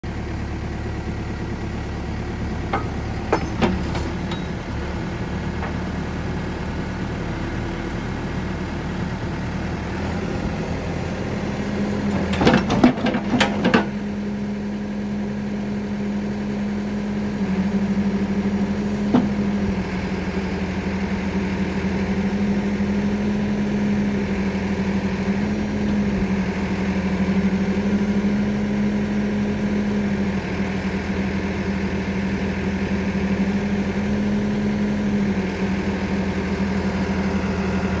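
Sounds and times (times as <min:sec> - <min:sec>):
diesel engine running: 0:00.0 - 0:38.0
hydraulics working: 0:02.4 - 0:07.1
metal clanks: 0:02.7 - 0:04.6.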